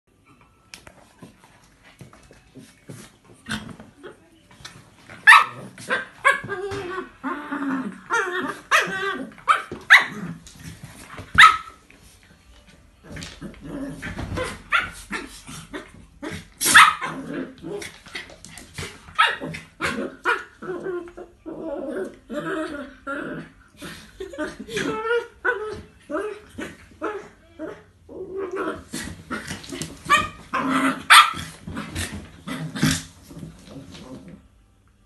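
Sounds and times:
dogs growling: 0:05.5 - 0:10.8, 0:13.0 - 0:34.5.

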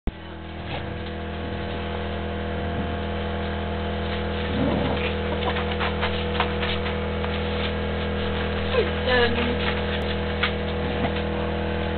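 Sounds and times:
steady hum: 0:00.1 - 0:11.9
paws scrabbling on plastic tarp: 0:04.0 - 0:11.4
dog growling: 0:04.4 - 0:05.8.

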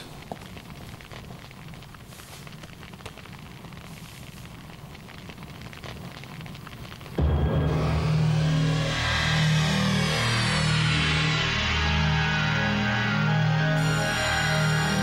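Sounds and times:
log fire crackling: 0:00.0 - 0:07.9
loud low music: 0:07.2 - 0:15.0.

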